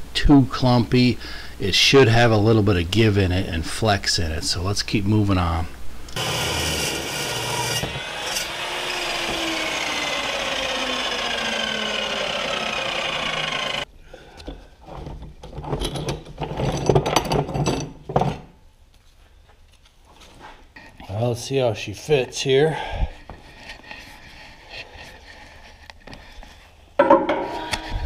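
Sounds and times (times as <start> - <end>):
chop saw cutting steel: 6.2 - 13.9
saw blade spinning down whine: 6.2 - 13.9
knocks and scraping: 14.4 - 18.6, 23.2 - 28.0.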